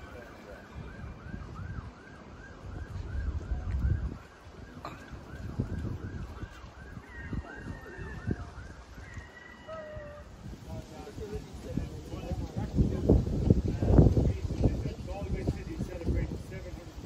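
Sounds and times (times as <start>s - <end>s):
siren yelping: 0.0s - 10.4s
traffic rumble: 0.0s - 17.0s
wind: 0.0s - 17.0s.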